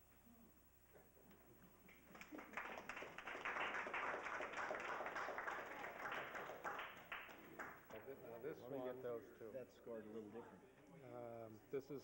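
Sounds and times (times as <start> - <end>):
audience applauding: 1.9 - 8.0.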